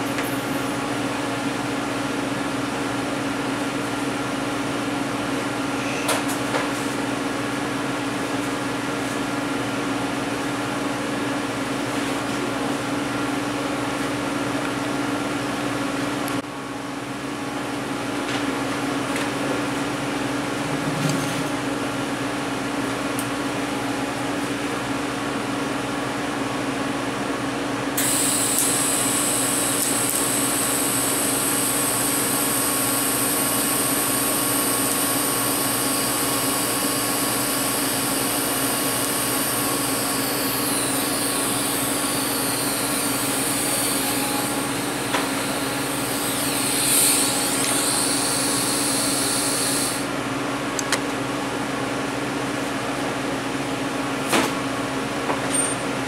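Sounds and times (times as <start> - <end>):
machine hum: 7.0 - 51.6
welding arc hiss and buzz: 28.0 - 50.2.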